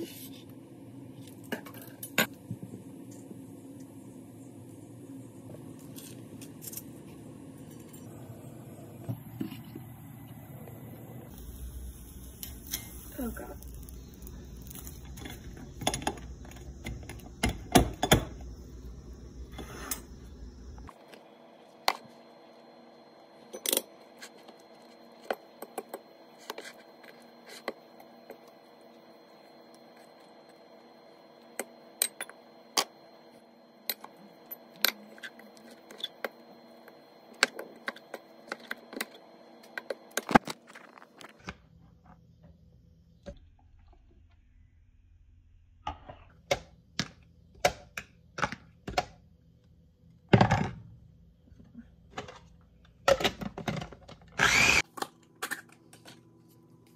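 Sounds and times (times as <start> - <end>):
steady low hum: 0.0 - 48.4.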